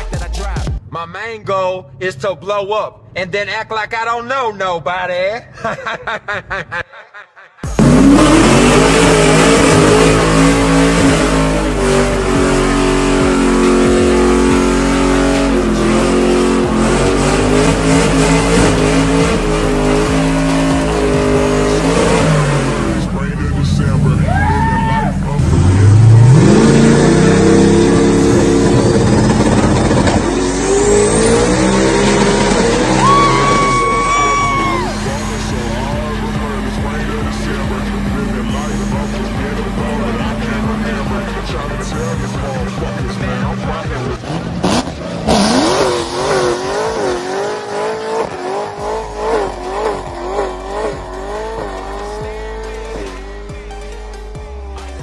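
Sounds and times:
car engine revving hard: 0:07.6 - 0:24.2, 0:25.1 - 0:53.7
tyre squealing: 0:28.4 - 0:36.0.

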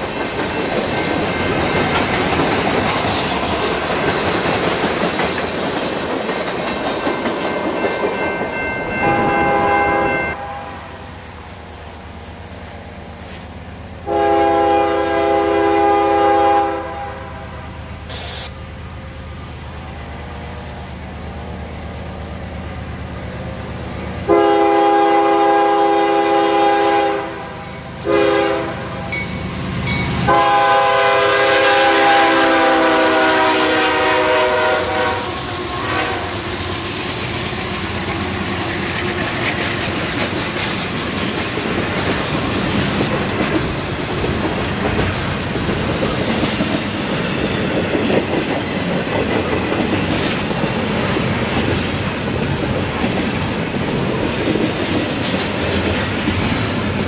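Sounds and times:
train rumbling and clacking on rails: 0:00.0 - 0:57.0
locomotive air horn blasts: 0:09.0 - 0:10.9, 0:14.0 - 0:18.5, 0:24.3 - 0:29.1, 0:30.3 - 0:36.3.

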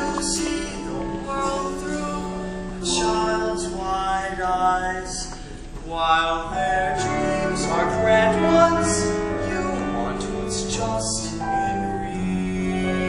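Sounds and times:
man singing a ballad: 0:00.0 - 0:13.0
instrumental accompaniment: 0:06.5 - 0:13.0.

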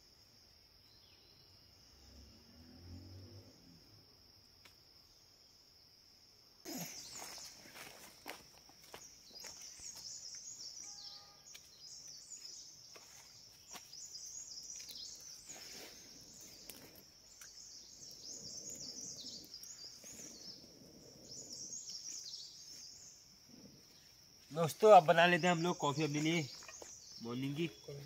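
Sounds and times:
birds chirping: 0:06.7 - 0:28.0.

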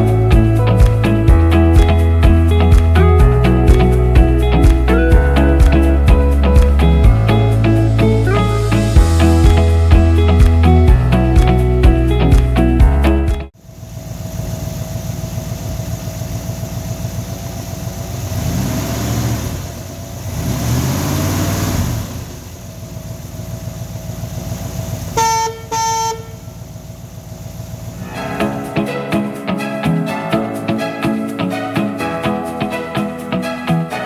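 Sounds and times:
car engine idling and revving: 0:13.5 - 0:28.1
car horn toots: 0:25.2 - 0:26.5.

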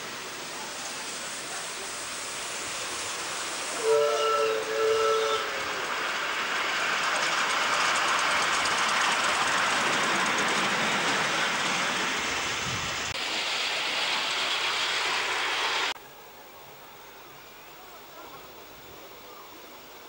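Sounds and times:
miniature steam train rushing: 0:00.0 - 0:20.0
wheels clattering on rails: 0:05.7 - 0:14.8.

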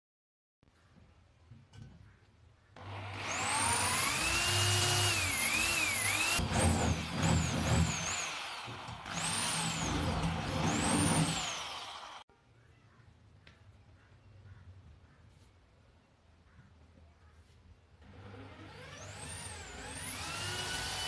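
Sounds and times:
electric drill boring through metal: 0:02.8 - 0:12.2, 0:18.0 - 0:21.0.

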